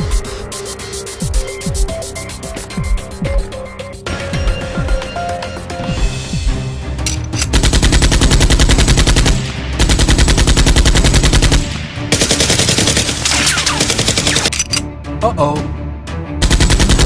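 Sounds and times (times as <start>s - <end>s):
background music: 0.0s - 17.0s
machine-gun fire: 7.5s - 14.5s, 16.4s - 17.0s.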